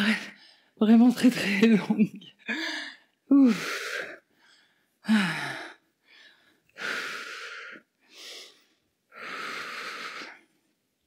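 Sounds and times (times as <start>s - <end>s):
woman breathing hard: 2.4s - 10.6s.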